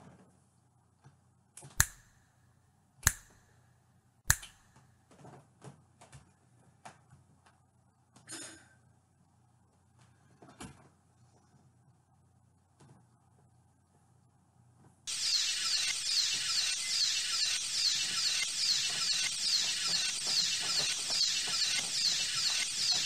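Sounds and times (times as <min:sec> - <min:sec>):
loud sharp snaps: 0:01.6 - 0:02.2, 0:03.0 - 0:03.5, 0:04.3 - 0:04.8.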